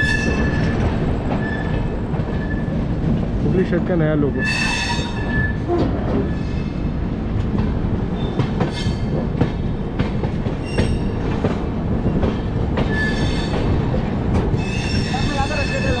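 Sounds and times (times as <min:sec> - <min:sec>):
train wheels rumbling on track: 0:00.0 - 0:16.0
wheel squeals: 0:01.4 - 0:02.8, 0:04.4 - 0:06.7, 0:10.6 - 0:11.2, 0:12.9 - 0:13.6, 0:14.6 - 0:16.0.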